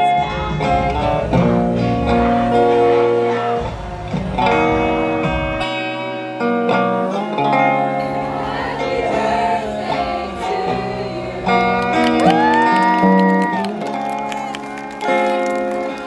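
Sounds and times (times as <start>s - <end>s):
guitar-led song: 0.0s - 16.0s
person singing: 6.7s - 16.0s.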